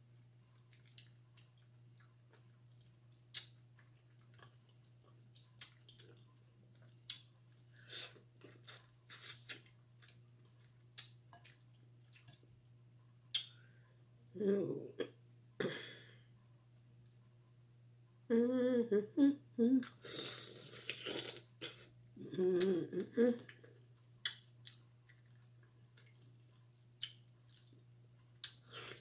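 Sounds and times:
faint steady hum: 0.0 - 29.0
wet chewing smacks: 0.6 - 12.5, 23.9 - 29.0.

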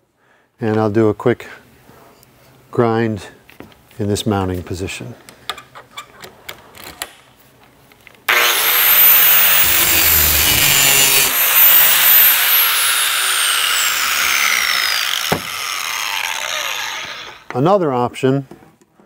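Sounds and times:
angle grinder grinding steel: 8.3 - 17.5.

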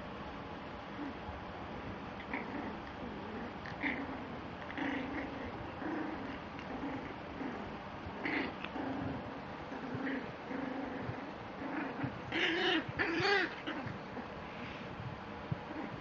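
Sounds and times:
puppies whining: 11.0 - 14.4.

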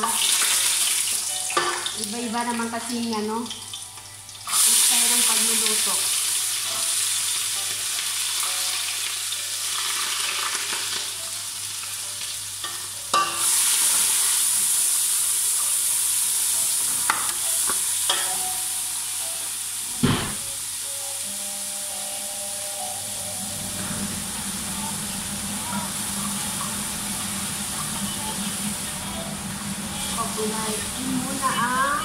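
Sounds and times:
vegetables sizzling in hot oil: 0.0 - 32.0.

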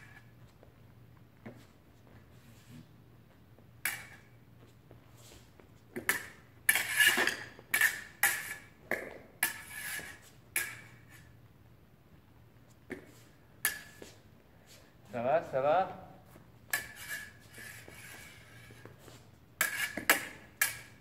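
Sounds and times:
steel fencing blades clashing: 3.8 - 4.4, 6.0 - 11.4, 13.6 - 14.2, 16.6 - 18.7, 19.6 - 21.0.

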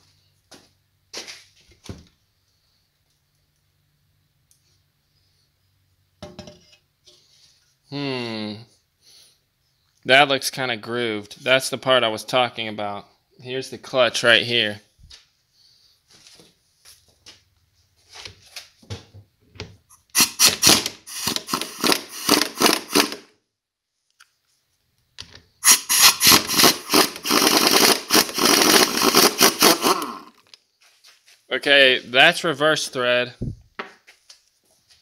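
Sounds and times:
pneumatic impact wrench hammering: 19.9 - 23.3, 25.6 - 30.3.

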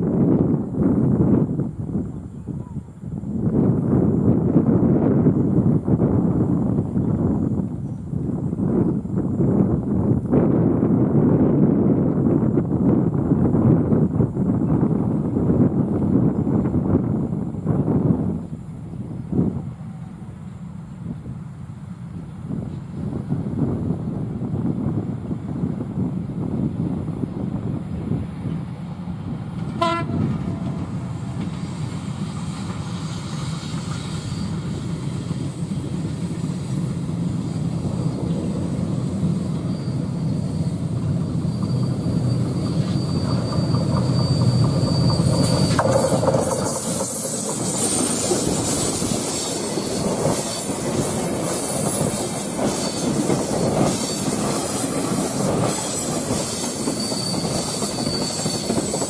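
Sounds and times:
diesel locomotive drumming: 3.1 - 59.0
clattering train wheels: 28.4 - 59.0
thin wheel squeal: 34.0 - 34.8, 39.3 - 59.0.

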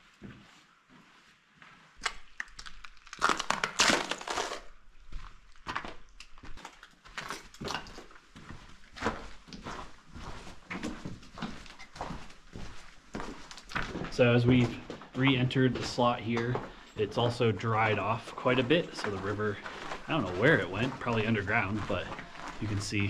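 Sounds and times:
footsteps crunching on gravel: 5.0 - 23.0.

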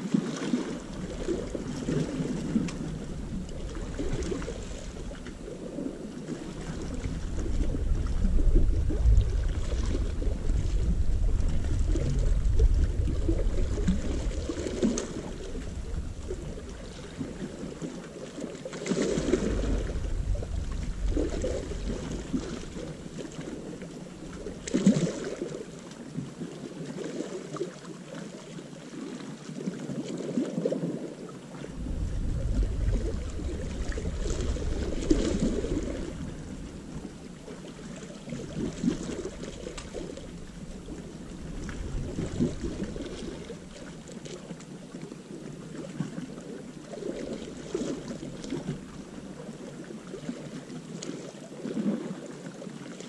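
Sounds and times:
water washing against rocks: 0.0 - 26.1, 31.6 - 44.7
wind buffeting microphone: 0.8 - 17.9, 18.9 - 25.0, 31.7 - 44.0.

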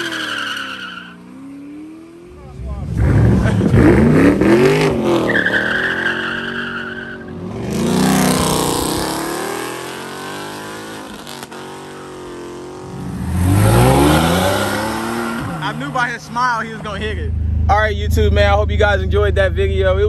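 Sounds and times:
tyres squealing: 0.0 - 1.2, 5.0 - 7.4
car engine passing close: 0.0 - 20.0
car engine revving: 0.0 - 20.0.

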